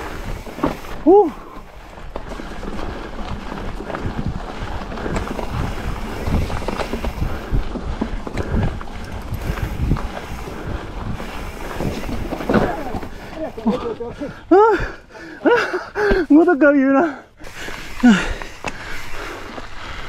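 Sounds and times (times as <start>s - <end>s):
wind buffeting microphone: 1.5s - 15.1s
bike thumps and knocks: 11.8s - 13.1s.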